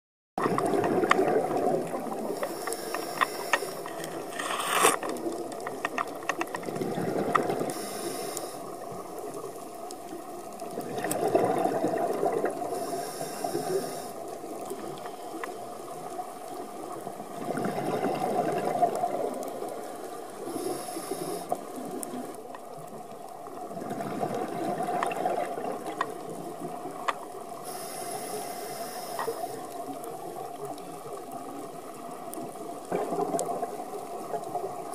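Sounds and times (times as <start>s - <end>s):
exhaled bubbles rushing: 0.4s - 2.4s, 10.7s - 12.7s, 17.3s - 19.7s, 23.7s - 25.9s, 32.8s - 34.6s
regulator hiss on inhale: 2.3s - 5.0s, 7.6s - 9.2s, 12.6s - 15.9s, 20.2s - 22.3s, 27.5s - 30.0s.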